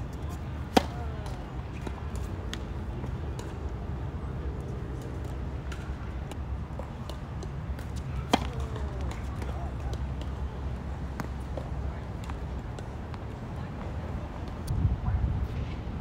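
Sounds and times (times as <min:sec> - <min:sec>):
racket striking tennis ball: 0:00.2 - 0:03.6, 0:06.9 - 0:10.3.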